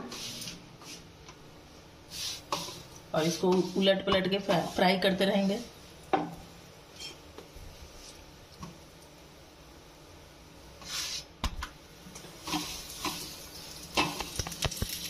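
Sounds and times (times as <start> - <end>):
flatbread sizzling on a griddle: 0.0 - 1.0, 2.0 - 9.3, 10.5 - 11.4, 12.1 - 15.0
small crackles: 12.5 - 15.0.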